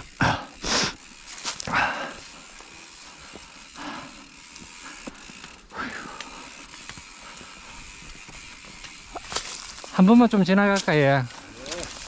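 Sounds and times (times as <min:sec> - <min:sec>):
footsteps crunching on gravel: 0:01.2 - 0:03.6, 0:06.7 - 0:12.0.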